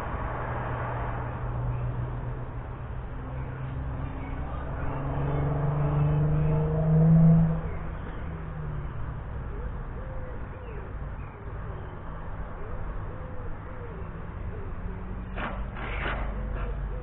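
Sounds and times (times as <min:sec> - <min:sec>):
pigeon cooing: 0:09.4 - 0:15.2.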